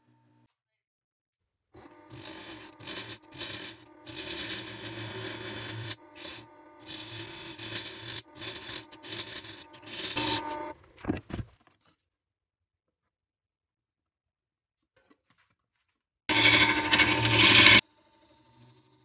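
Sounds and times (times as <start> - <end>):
wood lathe humming: 1.8 - 10.7, 16.3 - 17.8
gouge cutting wood: 1.9 - 10.7, 16.3 - 17.8.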